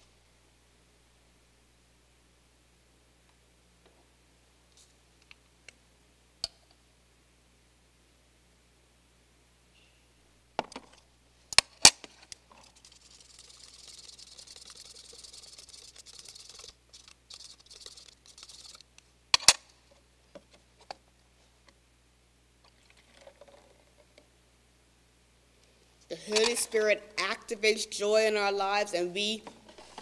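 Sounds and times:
spoon stirring in cup: 12.5 - 18.8
kettle and cups clicking: 22.7 - 23.9.

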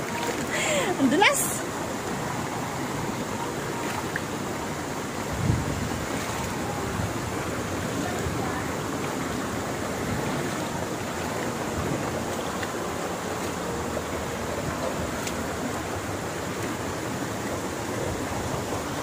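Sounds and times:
stream rushing over stones: 0.0 - 19.0.

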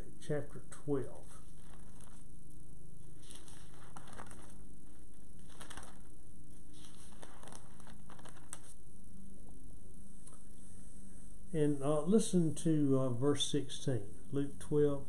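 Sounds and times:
thin pages rustling: 1.4 - 2.3, 3.0 - 8.8.

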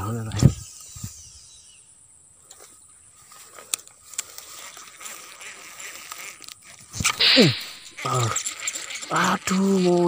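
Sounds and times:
fishing reel handling noise: 2.4 - 10.0.

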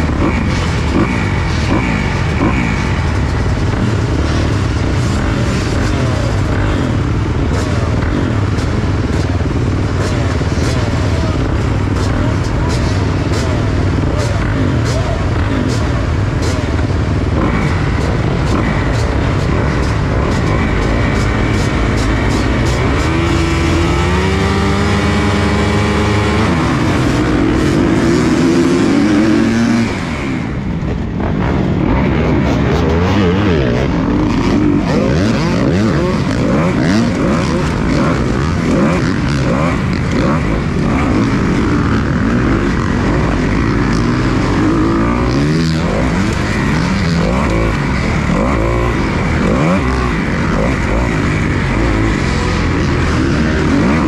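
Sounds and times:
motocross bikes revving and racing: 0.0 - 54.0.

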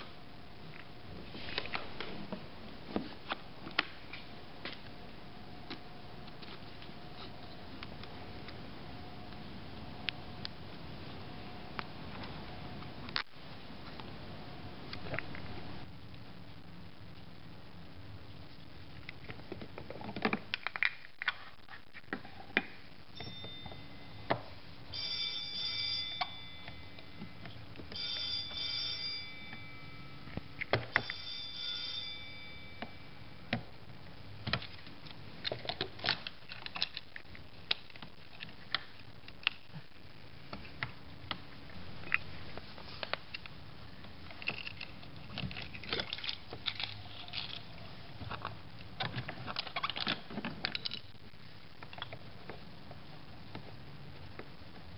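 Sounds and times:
telephone bell ringing: 23.2 - 24.3, 25.0 - 27.2, 27.9 - 30.3, 31.0 - 33.1.

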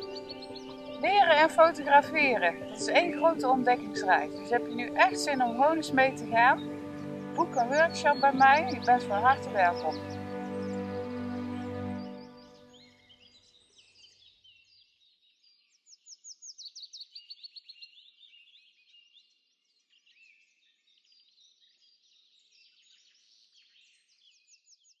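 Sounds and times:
music: 0.0 - 13.0
songbirds singing: 0.0 - 25.0.

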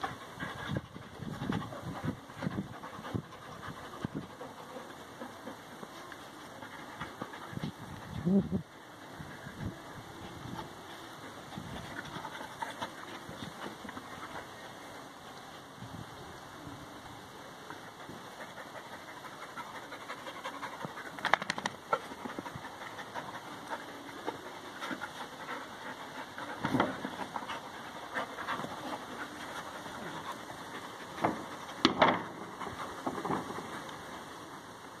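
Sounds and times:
dogs panting: 0.0 - 15.7, 17.6 - 35.0
dogs tussling: 18.1 - 33.9.

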